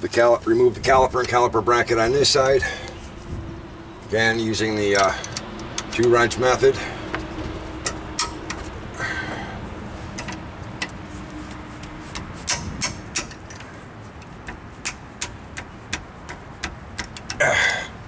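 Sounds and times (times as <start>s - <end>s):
wrenches clicking on metal: 4.2s - 8.8s, 10.1s - 18.0s.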